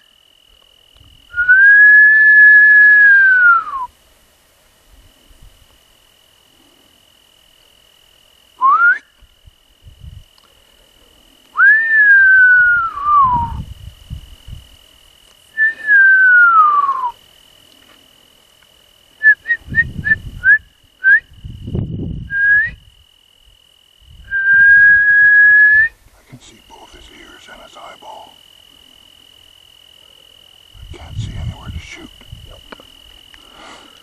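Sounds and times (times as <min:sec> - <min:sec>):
person whistling: 0:01.4 - 0:03.9, 0:08.6 - 0:09.1, 0:11.6 - 0:13.6, 0:15.6 - 0:17.2, 0:22.3 - 0:22.8, 0:24.3 - 0:25.9
breath noise: 0:33.3 - 0:34.0.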